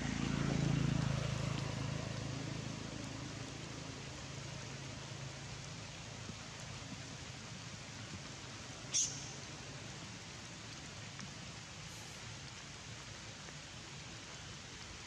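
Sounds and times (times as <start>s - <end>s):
passing vehicle engine hum: 0.0s - 6.0s
steady outdoor hiss: 0.0s - 15.0s.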